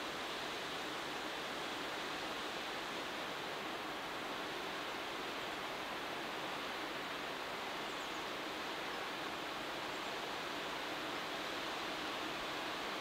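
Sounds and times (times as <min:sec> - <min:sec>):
wind rustling tree leaves: 0:00.0 - 0:13.0.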